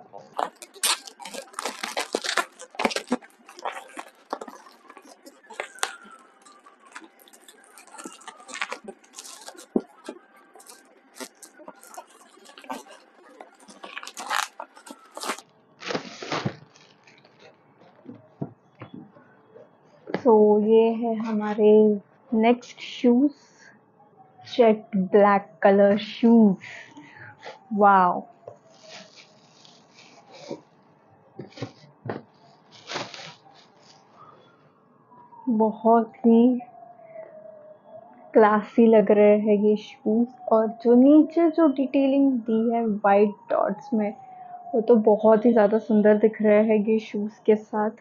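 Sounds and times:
packaging crinkling and rustling: 0:00.2 - 0:18.2, 0:31.4 - 0:34.2.

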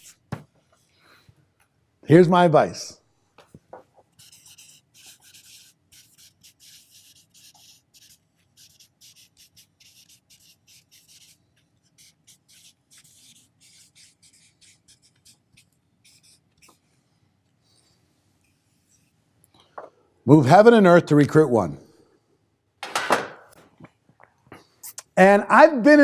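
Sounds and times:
marker writing on whiteboard: 0:00.0 - 0:00.5, 0:03.5 - 0:16.8.

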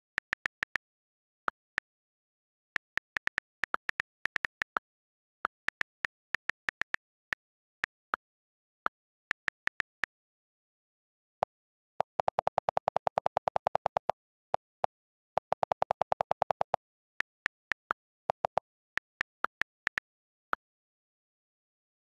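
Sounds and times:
rapid low keyboard clicks: 0:02.8 - 0:04.8, 0:05.4 - 0:08.0, 0:12.0 - 0:14.7, 0:15.4 - 0:20.1.

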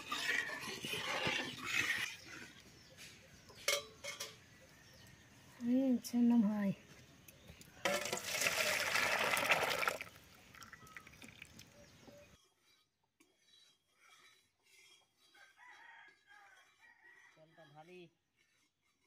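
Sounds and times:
liquid splashing into a bowl: 0:07.8 - 0:11.6
faint chicken clucking: 0:15.0 - 0:18.6.

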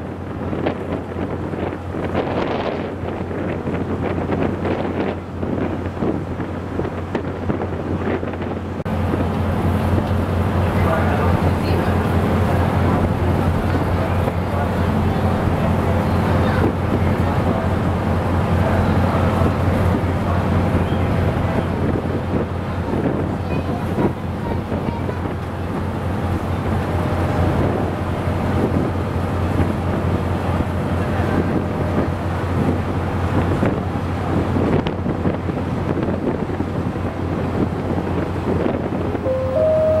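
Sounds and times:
wind buffeting microphone: 0:00.0 - 0:39.8
ferry engines droning: 0:08.7 - 0:34.4, 0:39.1 - 0:40.0.

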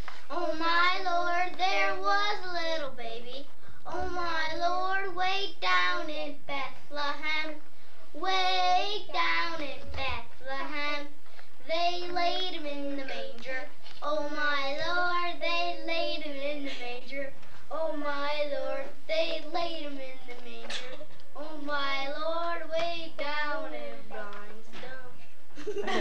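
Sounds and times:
child singing unaccompanied: 0:00.2 - 0:25.2.

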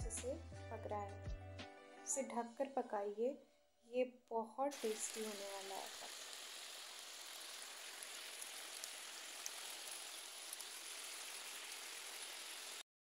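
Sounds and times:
curry sizzling in a wok: 0:04.7 - 0:12.8.

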